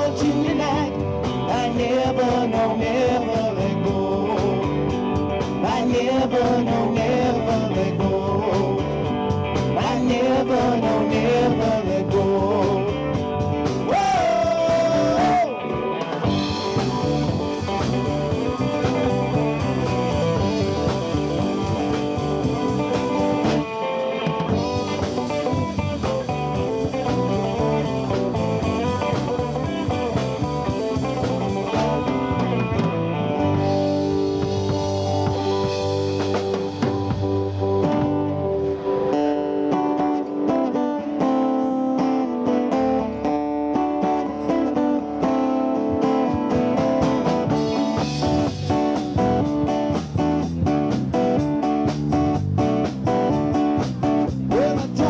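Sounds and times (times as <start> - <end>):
electric and acoustic guitars: 0.0 - 55.0
drum beat: 9.4 - 23.7, 24.3 - 38.4, 46.5 - 55.0.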